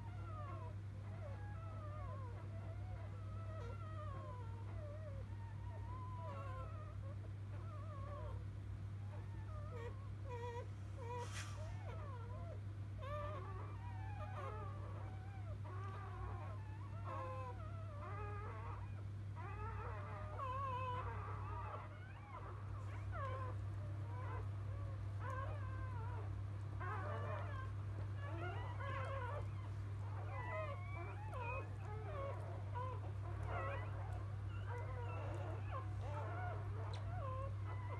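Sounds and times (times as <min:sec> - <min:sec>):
steady low hum: 0:00.0 - 0:37.9
puppies squeaking and whimpering: 0:09.0 - 0:37.9.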